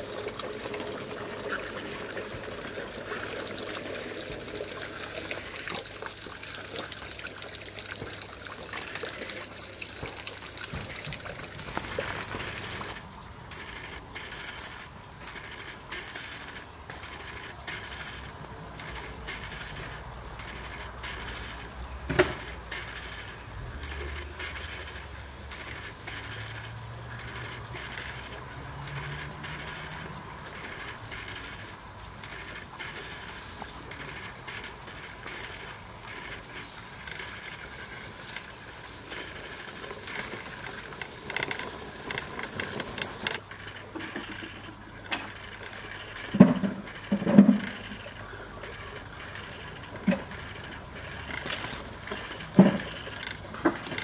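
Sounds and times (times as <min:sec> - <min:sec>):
model tram motor whirring: 0:00.0 - 0:54.0
wheels clicking over rails: 0:00.0 - 0:54.0.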